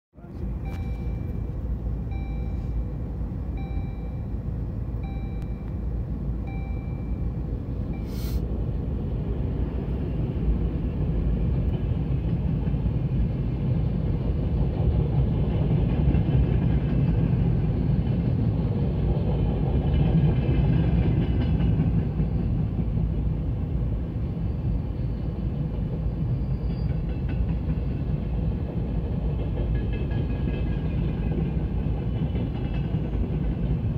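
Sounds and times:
train wheels rumbling on rails: 0:00.2 - 0:33.9
short beeps: 0:00.4 - 0:08.4.

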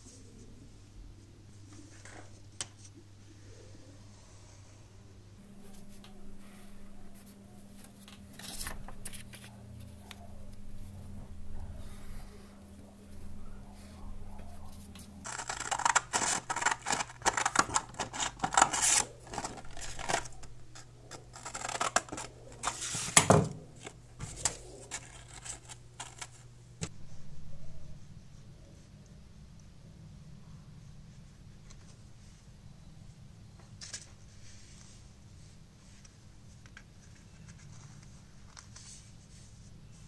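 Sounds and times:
scissors cutting sandpaper: 0:15.3 - 0:20.2.

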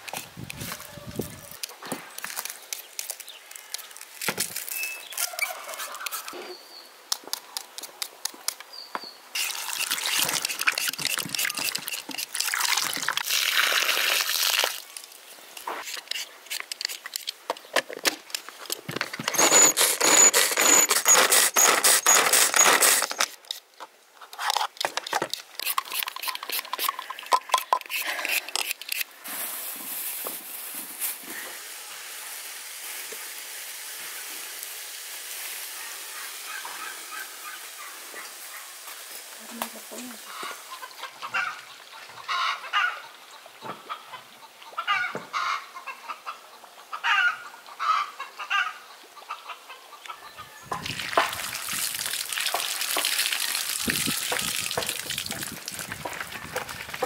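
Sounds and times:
peeler scraping potatoes: 0:09.4 - 0:12.4, 0:15.7 - 0:17.3, 0:19.2 - 0:23.6, 0:24.4 - 0:29.1
water splashing in a bowl: 0:09.4 - 0:15.1, 0:50.8 - 0:57.0.

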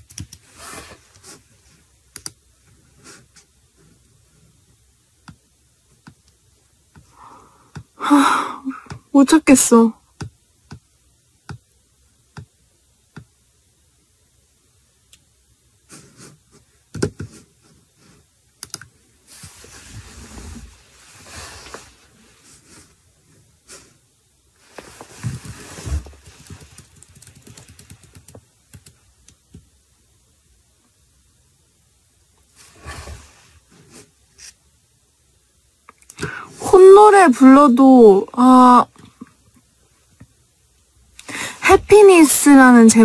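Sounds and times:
handling rubbing noise: 0:19.3 - 0:23.0, 0:24.6 - 0:28.2.

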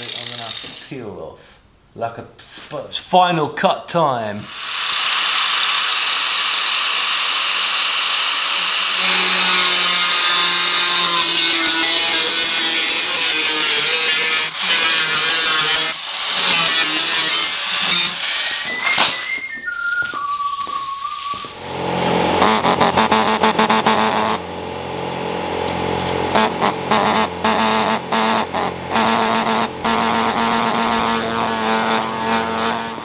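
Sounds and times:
power tool cutting sheet steel: 0:00.0 - 0:01.0, 0:04.5 - 0:19.3, 0:21.6 - 0:33.0
steady motor hum: 0:21.6 - 0:33.0.

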